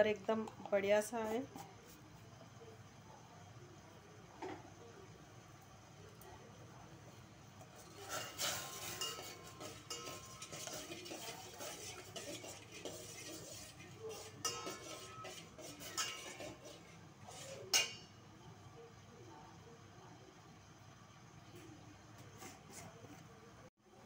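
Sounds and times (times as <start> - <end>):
metal skimmer scraping a pot: 7.8 - 18.1.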